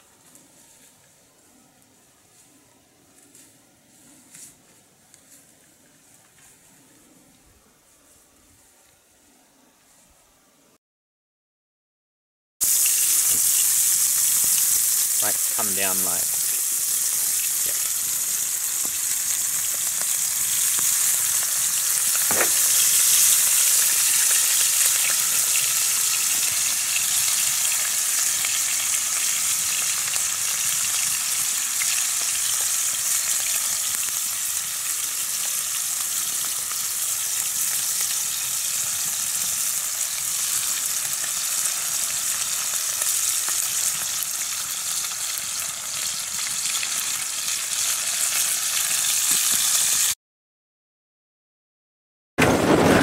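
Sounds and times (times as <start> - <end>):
food sizzling in a frying pan: 12.6 - 50.2.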